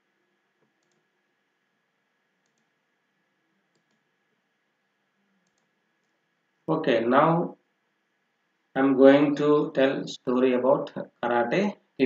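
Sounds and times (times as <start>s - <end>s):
faint computer mouse clicks: 0.7s - 1.0s, 2.4s - 2.7s, 3.7s - 4.0s, 5.4s - 6.2s.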